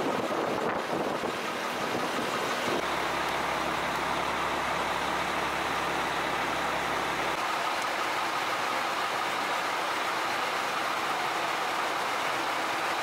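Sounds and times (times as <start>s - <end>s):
heavy vehicle engine idling: 0.0s - 13.0s
steady rushing noise: 0.0s - 13.0s.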